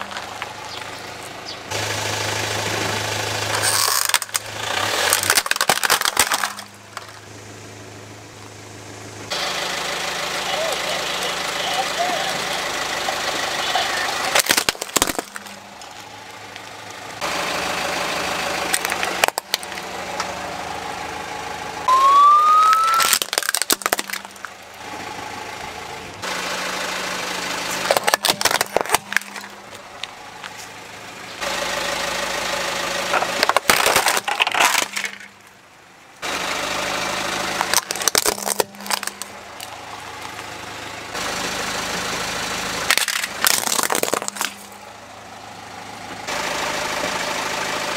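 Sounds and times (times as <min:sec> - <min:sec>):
plastic toys cracking and snapping: 0:03.6 - 0:07.1, 0:14.3 - 0:15.5, 0:18.7 - 0:19.8, 0:22.6 - 0:24.6, 0:27.8 - 0:30.1, 0:33.2 - 0:35.3, 0:37.6 - 0:39.7, 0:42.9 - 0:44.8
rising squeak: 0:21.9 - 0:23.2.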